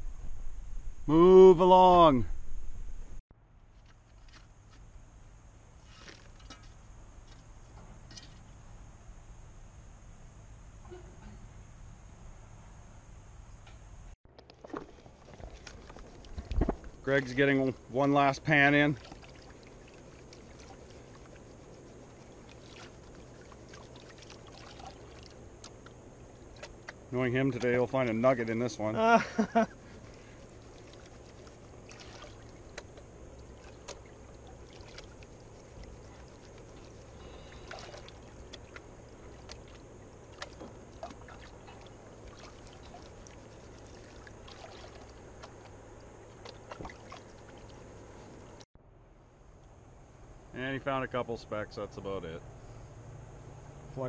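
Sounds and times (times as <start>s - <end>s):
steady low hiss: 0.0s - 14.2s, 15.1s - 54.0s
water swishing and pouring: 18.5s - 25.7s, 30.2s - 45.7s, 46.4s - 48.6s.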